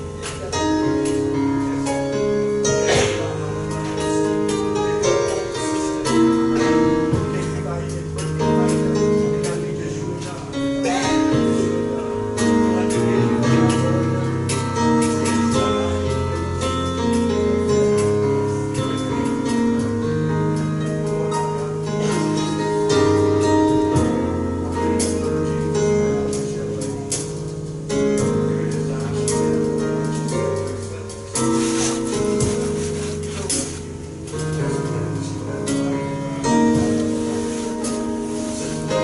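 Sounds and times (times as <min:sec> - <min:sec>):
held chords: 0:00.0 - 0:39.0
slow bass line: 0:23.5 - 0:39.0.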